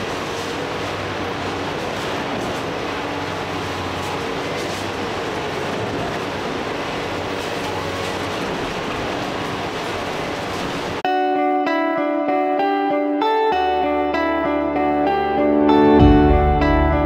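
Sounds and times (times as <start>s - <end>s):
excavator diesel engine running: 13.8s - 17.0s.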